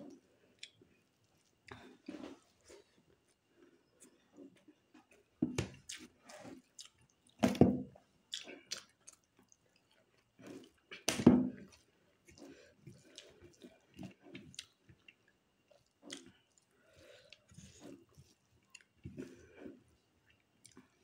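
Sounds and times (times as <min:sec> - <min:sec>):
chewing with lip smacks: 0:05.8 - 0:07.4, 0:08.3 - 0:21.0.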